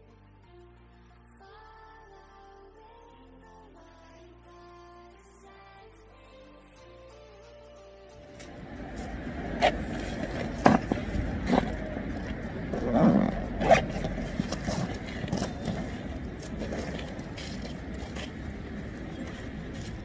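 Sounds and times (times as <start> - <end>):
street traffic: 8.2 - 20.0
backpack knocks and scrapes: 8.3 - 18.3.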